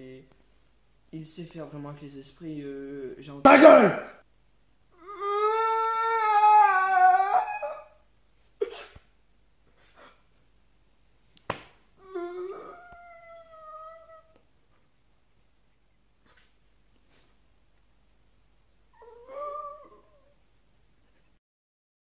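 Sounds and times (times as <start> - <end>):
man wailing: 3.5 - 4.2.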